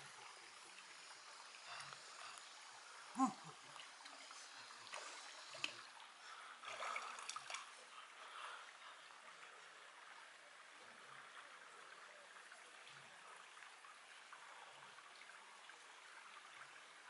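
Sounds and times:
stream trickling: 0.0 - 17.0
splashes and knocks in water: 6.6 - 7.7.

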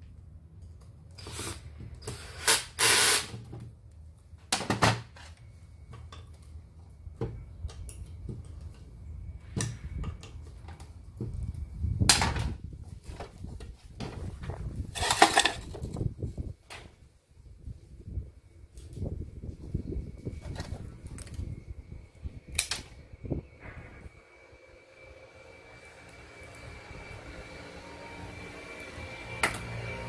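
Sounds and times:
cordless drill running: 2.2 - 3.3, 24.4 - 30.0
scraping: 13.1 - 16.0.

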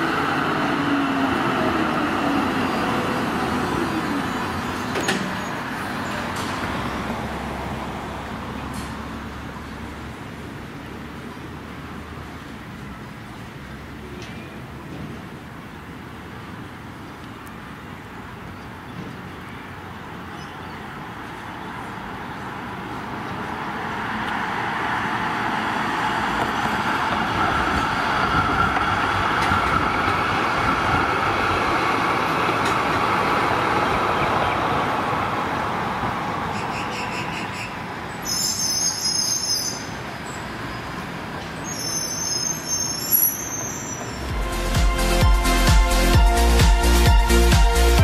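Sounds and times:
tram rolling rumble: 0.0 - 44.7
wheel squeal: 36.6 - 40.8, 41.6 - 44.3.

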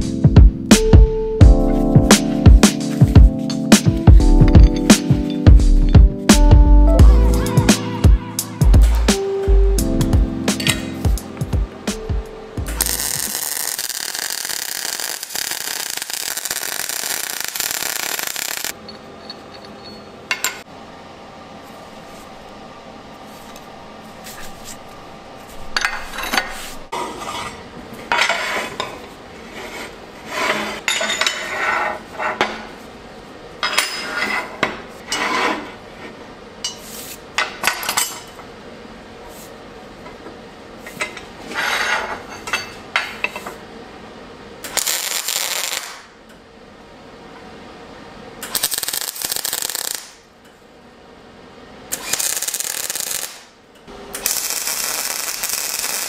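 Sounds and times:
welding crackle: 12.8 - 18.8, 44.7 - 46.1, 48.4 - 50.2, 51.9 - 53.5, 54.2 - 56.0
steel parts clanking and scraping: 18.7 - 20.6, 25.6 - 29.1, 30.3 - 32.7, 33.6 - 35.8.

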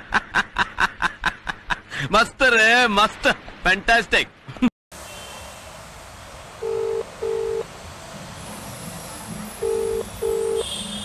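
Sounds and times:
telephone ringback tone: 6.6 - 7.7, 9.6 - 10.7.

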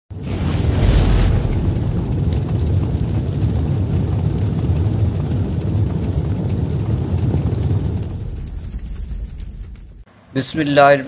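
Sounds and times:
low rumbling sound effect: 0.1 - 10.1.

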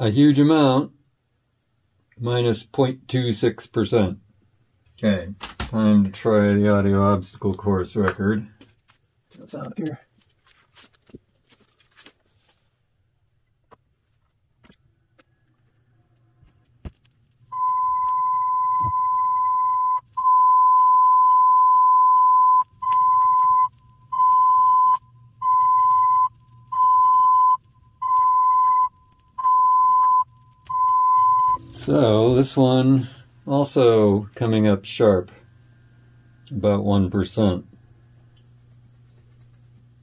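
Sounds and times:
faint low hum: 12.8 - 40.0
test tone beeping: 17.5 - 32.3.

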